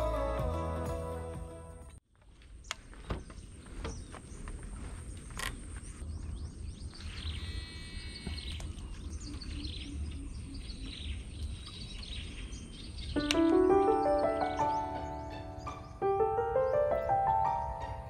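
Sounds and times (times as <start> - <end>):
birds chirping and calling: 5.8 - 18.0.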